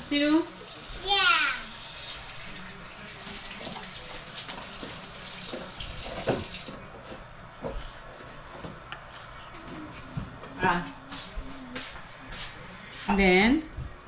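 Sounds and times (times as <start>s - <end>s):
tap running into sink: 3.2s - 6.8s.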